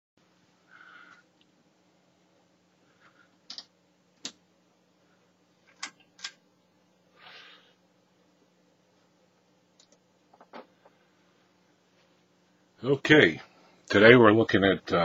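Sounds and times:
faint steady hum: 0.2 - 15.0.

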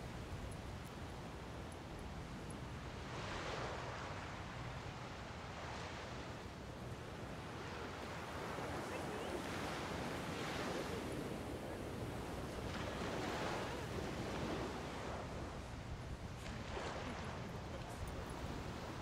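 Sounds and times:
small waves washing onto shore: 0.0 - 19.0.

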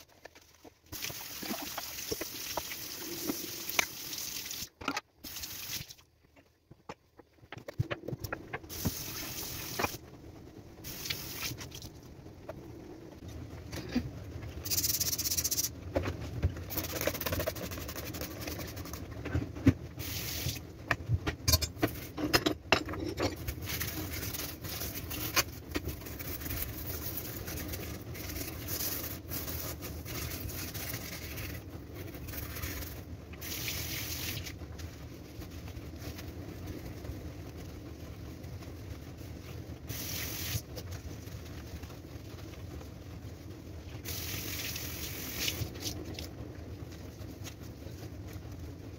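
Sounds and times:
running tap water: 0.9 - 6.0
metal grates and dishes clinking: 21.4 - 23.9.

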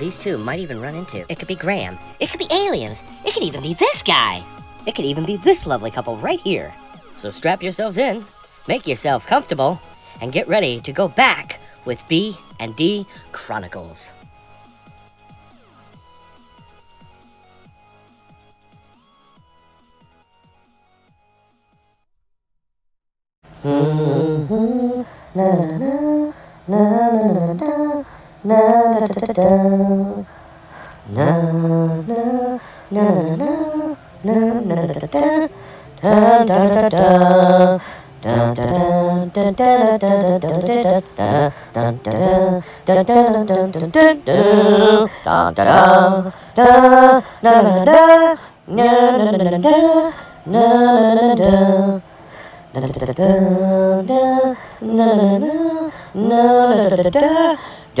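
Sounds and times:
person humming a slow melody: 23.5 - 58.0.

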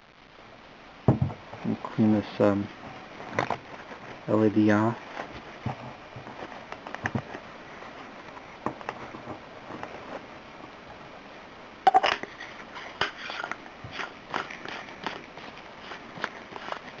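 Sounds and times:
paper towel rustling on flashlight: 2.7 - 10.5, 12.3 - 17.0.

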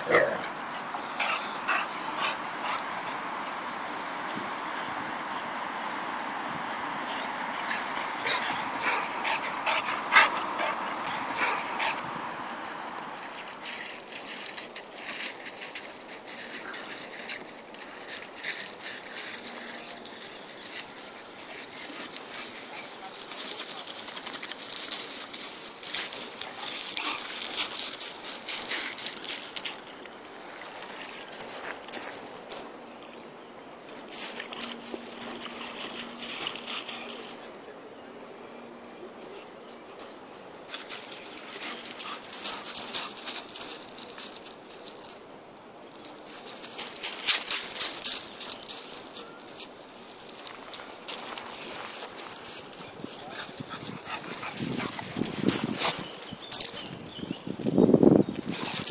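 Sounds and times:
footsteps crunching on gravel: 12.9 - 32.7, 40.7 - 45.2, 45.9 - 57.3.

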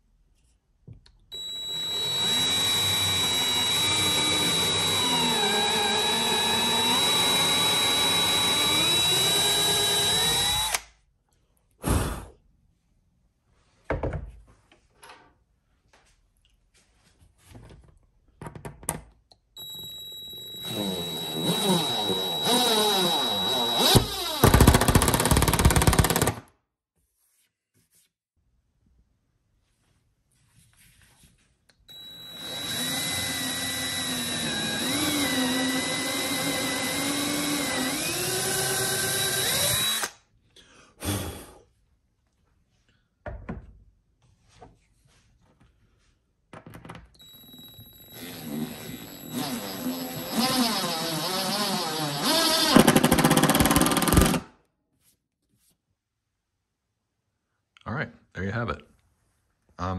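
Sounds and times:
cordless drill motor whining: 1.4 - 10.9, 19.6 - 26.3, 31.9 - 40.2, 47.2 - 54.4
drill trigger blips: 1.4 - 10.9, 19.6 - 26.4, 31.9 - 40.2, 47.2 - 54.4.

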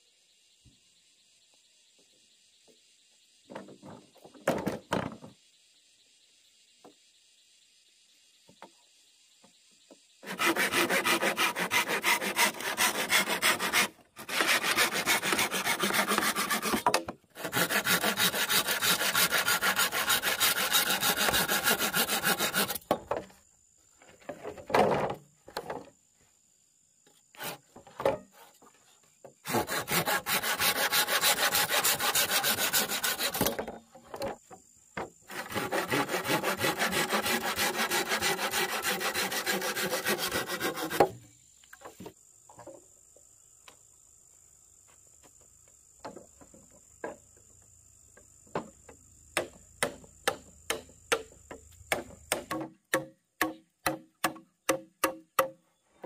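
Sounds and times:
hand saw cutting bamboo: 10.2 - 22.9, 27.4 - 27.6, 29.4 - 33.7, 35.3 - 41.2.

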